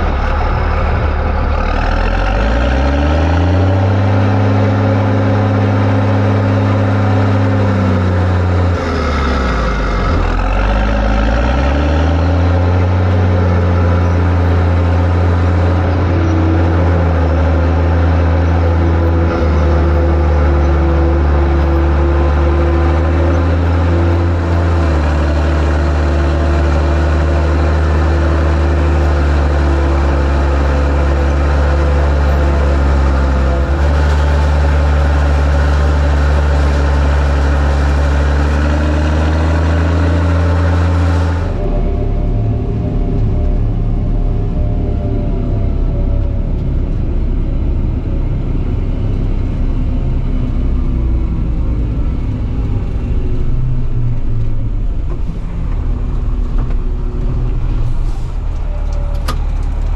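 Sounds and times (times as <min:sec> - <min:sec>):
tractor engine revving: 0:00.0 - 0:59.9.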